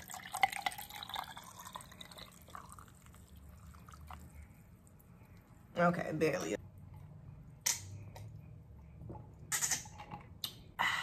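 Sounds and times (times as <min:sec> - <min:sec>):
drink pouring into metal mug: 0:00.0 - 0:04.3.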